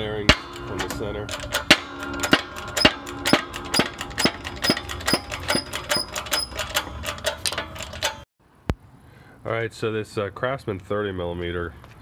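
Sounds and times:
sharp metallic clicks: 0.3s - 8.2s.

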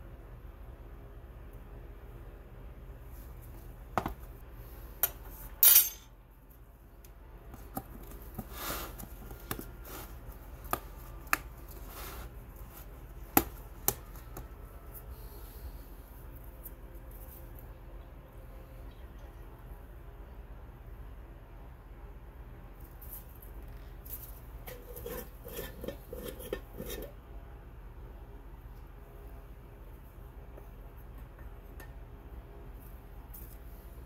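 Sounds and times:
soft rustle: 8.0s - 13.1s.

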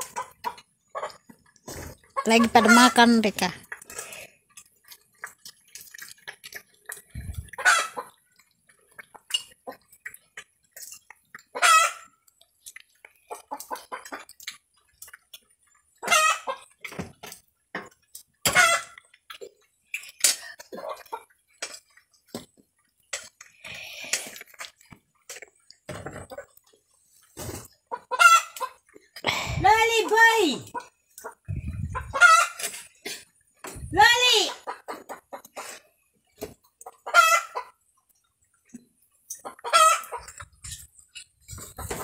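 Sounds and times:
chicken clucking: 0.0s - 3.5s, 7.2s - 10.3s, 10.9s - 12.3s, 13.2s - 14.5s, 15.6s - 17.4s, 18.5s - 19.1s, 20.7s - 21.4s, 25.9s - 33.2s, 34.0s - 42.0s.

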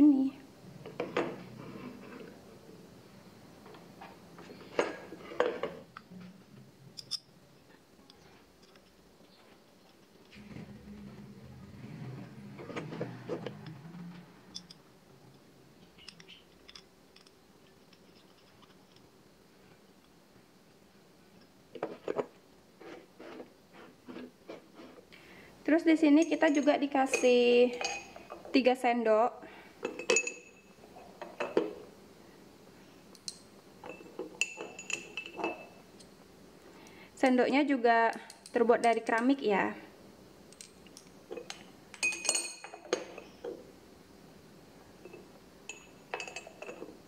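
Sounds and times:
ceramic spoons clinking: 26.2s - 28.3s, 29.8s - 30.7s, 33.2s - 35.8s, 40.6s - 43.4s, 45.0s - 46.9s.

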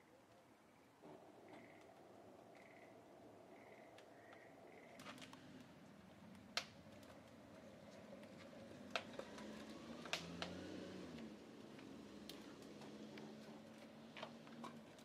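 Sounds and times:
faint low wavering hum: 0.0s - 8.2s.

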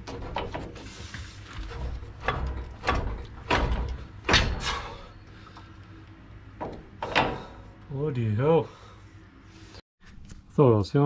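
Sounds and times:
strut knocking against metal: 1.6s - 4.7s.

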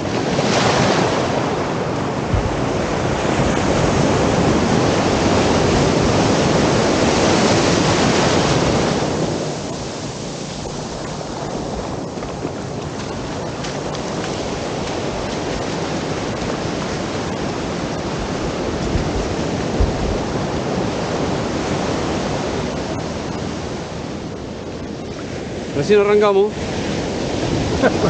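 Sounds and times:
sea surf breaking: 0.0s - 28.0s.

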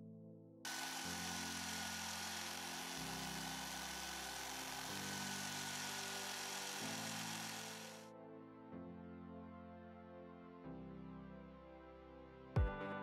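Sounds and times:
drill press drilling metal: 0.7s - 8.0s.

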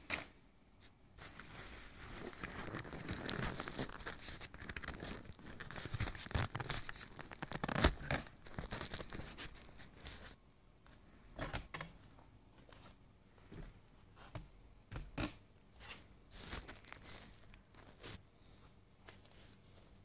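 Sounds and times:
tent fabric rustling and crinkling: 1.2s - 10.4s, 15.8s - 18.3s.

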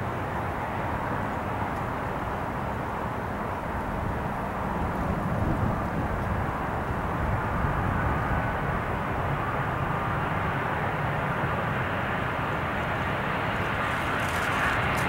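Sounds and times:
jet engines rushing: 0.0s - 15.0s
wind on microphone: 4.0s - 9.5s.

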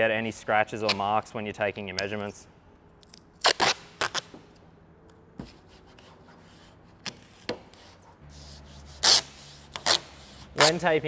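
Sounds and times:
masking tape ripping: 3.1s - 4.4s, 8.9s - 10.9s.

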